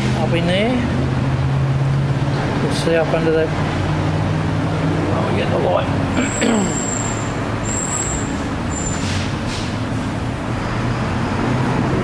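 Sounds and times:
garage background noise: 0.0s - 12.0s
short high-pitched whistles: 6.3s - 9.2s.

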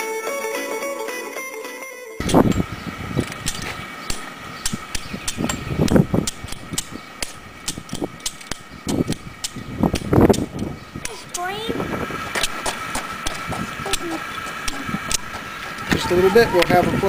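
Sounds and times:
electric blower whining: 2.2s - 9.4s, 11.1s - 17.0s
low bumps: 2.2s - 17.0s.

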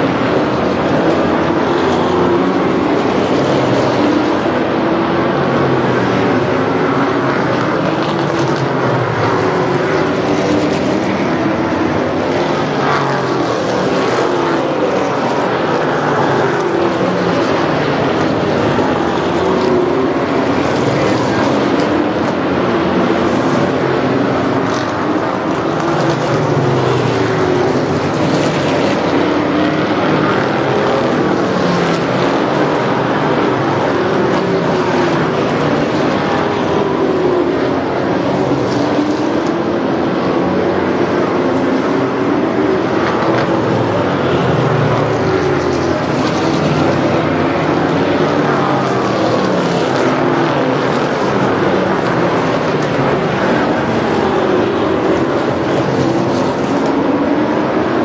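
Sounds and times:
race car engines running hard: 0.0s - 58.0s.

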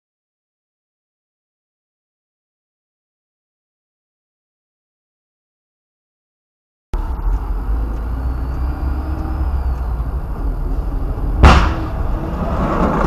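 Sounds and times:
car road and engine rumble: 7.0s - 13.0s
sharp loud bang: 11.4s - 13.0s.

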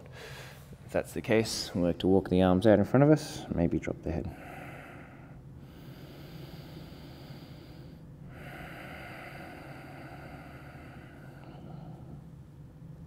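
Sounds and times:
person breathing: 0.0s - 0.8s, 4.3s - 12.3s
faint low hum: 0.0s - 13.0s.

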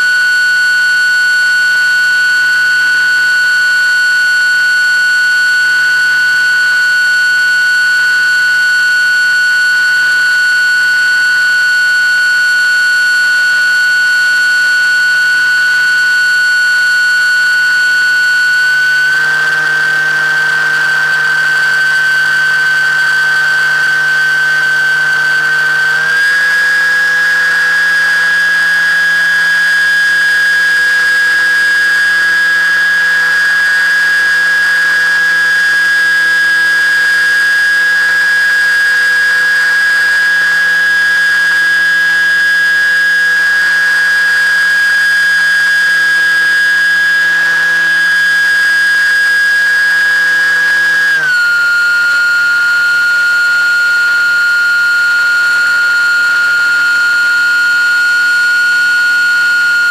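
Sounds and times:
electric motor propeller whining: 0.0s - 59.9s.

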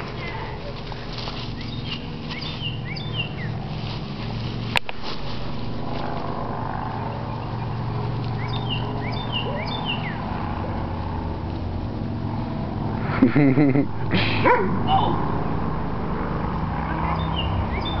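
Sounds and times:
low motor drone: 0.0s - 18.0s
bird chirping: 1.0s - 3.7s, 6.9s - 10.4s, 16.8s - 18.0s.

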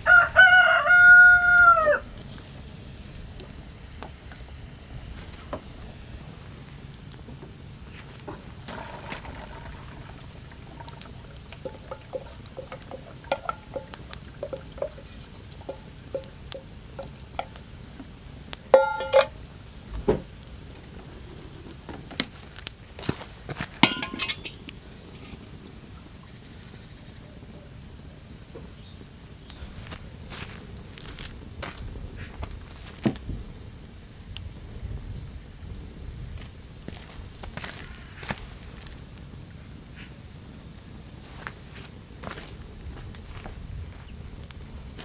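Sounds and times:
ringing metal clanks: 10.7s - 17.6s, 18.7s - 19.4s, 23.8s - 24.6s
ringing metallic clink of pot: 11.6s - 17.6s, 18.7s - 19.4s, 23.8s - 24.6s
cookware clicks and knocks: 18.8s - 19.3s, 23.8s - 24.6s.

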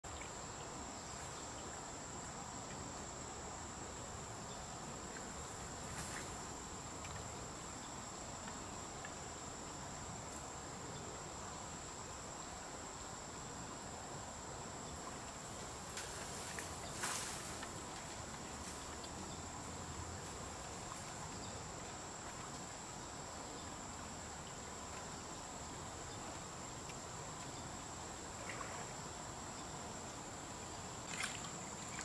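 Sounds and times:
crickets shrilling: 14.7s - 22.2s.

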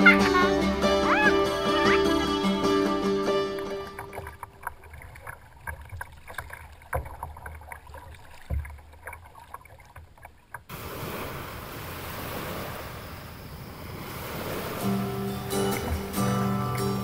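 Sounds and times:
rushing wind and water: 0.0s - 17.0s
waves lapping against kayak hull: 0.0s - 17.0s
water drips and splashes: 3.8s - 12.7s, 14.2s - 17.0s.

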